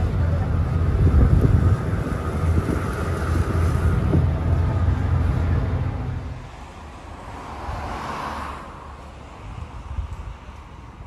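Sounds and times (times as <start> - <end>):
wind buffeting microphone: 0.0 - 6.6, 9.4 - 11.0
ferry engine low rumble: 0.0 - 8.0.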